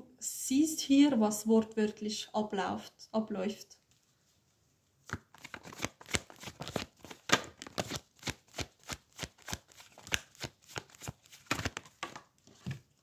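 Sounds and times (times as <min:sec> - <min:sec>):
cards snapping while shuffled: 0:05.1 - 0:12.2.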